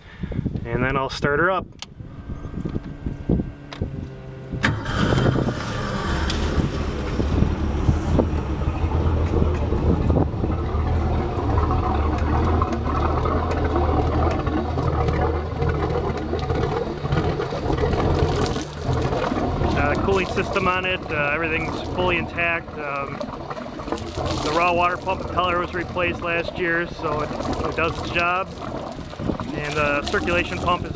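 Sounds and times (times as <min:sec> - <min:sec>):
starter cranking: 0:01.8 - 0:07.2
boat engine idling: 0:01.9 - 0:30.9.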